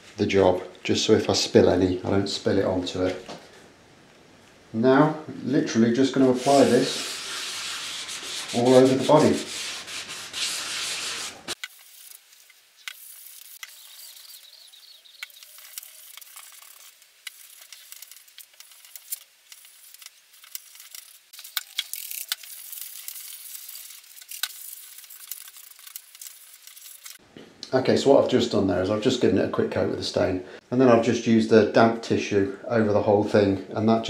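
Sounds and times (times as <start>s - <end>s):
wet rubbing on wood: 6.2s - 27.2s.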